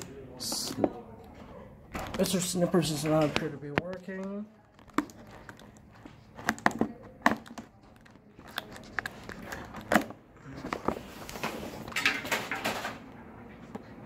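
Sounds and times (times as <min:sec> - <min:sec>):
plastic packaging crinkling: 0:02.2 - 0:10.2.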